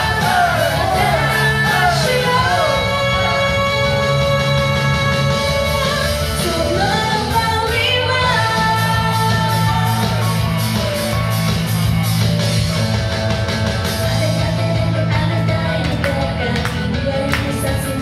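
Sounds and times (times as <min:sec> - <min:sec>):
woman singing into microphone: 0:00.0 - 0:10.2, 0:14.1 - 0:18.0
loud backing music: 0:00.0 - 0:18.0.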